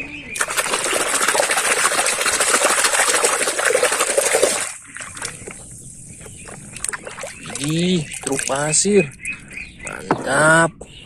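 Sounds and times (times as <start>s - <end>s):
water splashing hard: 0.4s - 5.6s, 6.3s - 8.8s
water sloshing: 0.4s - 9.6s.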